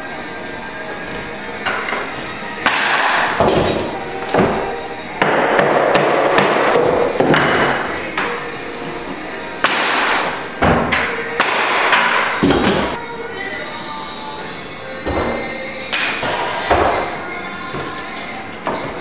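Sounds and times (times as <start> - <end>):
hammer striking wooden plank: 5.2 - 8.3.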